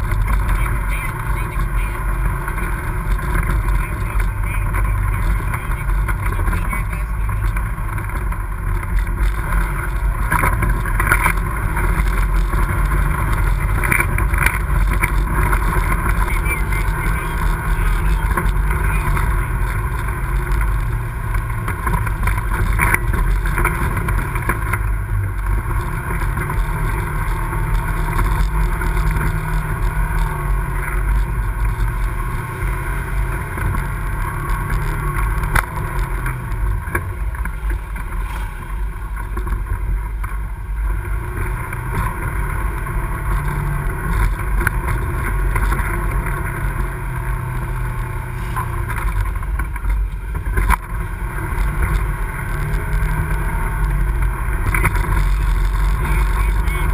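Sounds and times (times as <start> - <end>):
atv engine revving: 0.0 - 56.9.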